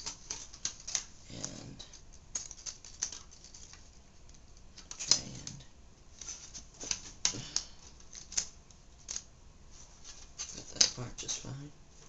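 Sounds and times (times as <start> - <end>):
plastic and metal parts clicking: 1.9 - 5.2.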